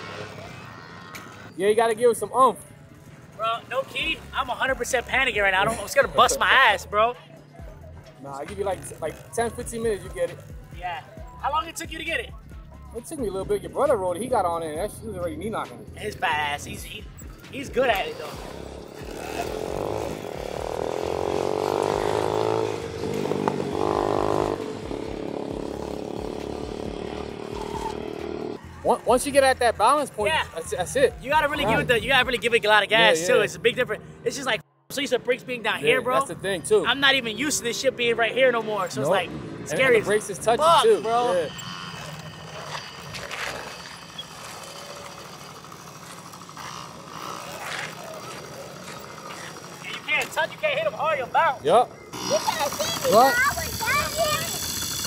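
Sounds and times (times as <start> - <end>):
electric motorbike motor whining: 17.2 - 28.6, 39.4 - 55.0
tyre noise on asphalt: 41.6 - 50.9.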